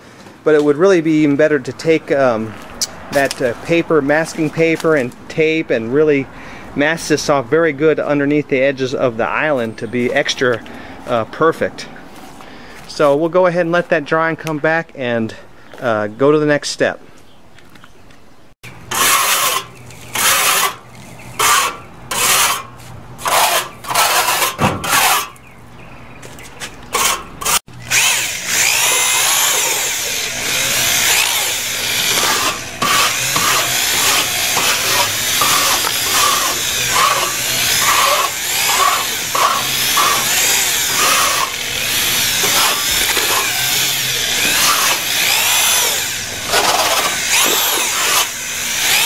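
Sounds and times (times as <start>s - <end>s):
drill mixing cement: 18.9s - 25.4s, 26.9s - 49.0s.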